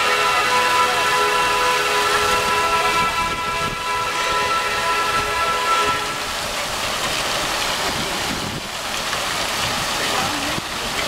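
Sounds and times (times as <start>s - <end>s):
horn-like chord: 0.0s - 6.3s
fountain water splashing: 0.0s - 11.0s.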